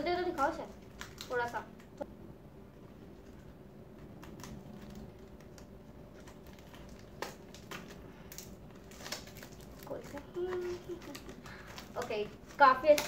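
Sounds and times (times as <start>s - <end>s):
paper crackle: 0.0s - 2.1s, 2.9s - 13.0s
scissors snipping paper: 4.0s - 13.0s.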